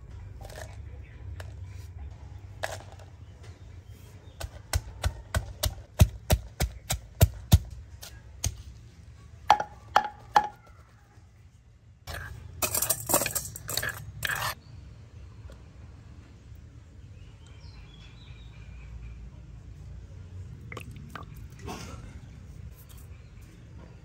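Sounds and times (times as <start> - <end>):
pestle pounding in wooden mortar: 4.4 - 7.8, 9.5 - 10.6.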